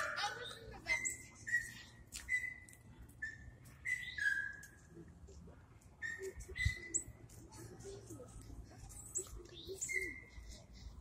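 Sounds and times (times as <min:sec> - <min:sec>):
high-pitched chirping: 0:06.0 - 0:07.2.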